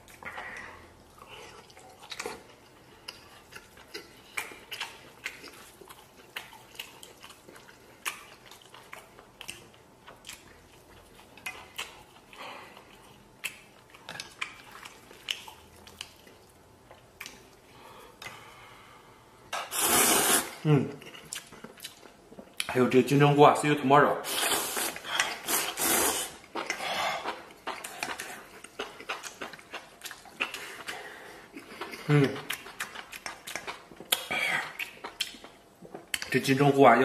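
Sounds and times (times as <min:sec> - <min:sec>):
chewing: 0:00.0 - 0:18.4, 0:21.0 - 0:22.7, 0:24.5 - 0:36.4.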